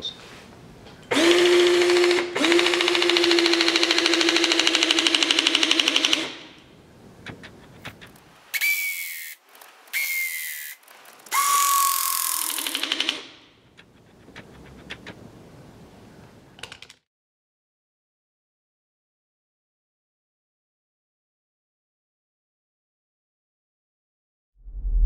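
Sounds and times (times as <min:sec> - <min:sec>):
hissing bursts with whistle: 0:08.5 - 0:12.5.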